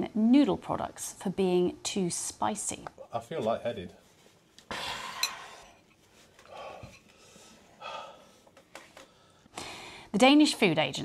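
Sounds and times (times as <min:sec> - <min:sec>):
person breathing hard: 0:04.7 - 0:10.1.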